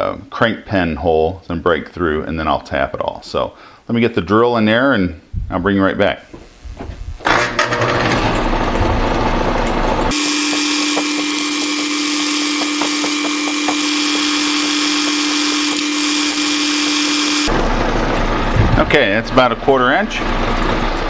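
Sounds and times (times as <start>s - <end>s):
drill boring into brass: 10.1s - 17.5s
metal lathe running: 10.1s - 18.1s.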